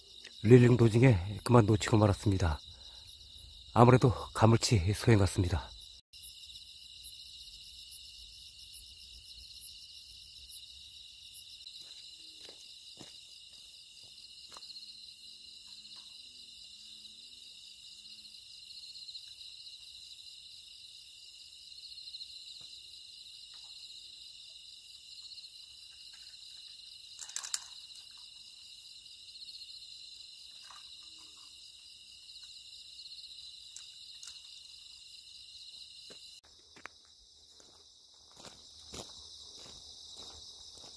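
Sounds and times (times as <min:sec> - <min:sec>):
crickets and insects trilling: 0:00.0 - 0:40.9.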